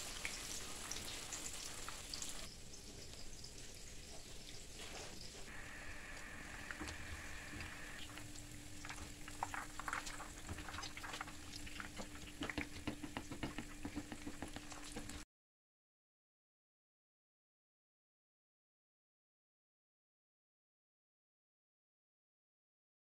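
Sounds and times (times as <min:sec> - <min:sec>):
hot oil sizzling and popping: 0:00.0 - 0:15.2
steady low hum: 0:05.2 - 0:15.2.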